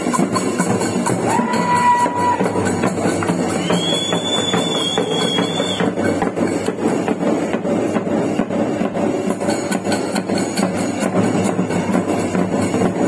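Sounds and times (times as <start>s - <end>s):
barrel drums beaten: 0.0s - 13.0s
high held whistle tone: 3.4s - 6.2s.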